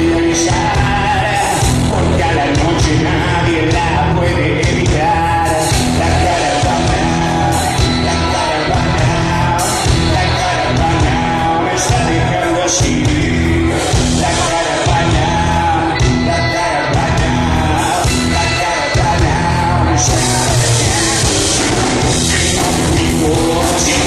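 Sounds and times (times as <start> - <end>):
drum kit: 0.0 - 24.0
electric bass: 0.0 - 24.0
electric guitar: 0.0 - 24.0
man singing: 0.0 - 24.0.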